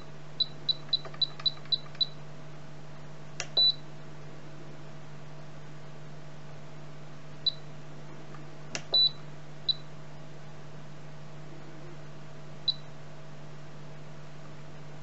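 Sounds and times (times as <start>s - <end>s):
faint steady hum: 0.0s - 15.0s
click: 3.4s - 3.6s, 8.7s - 9.0s.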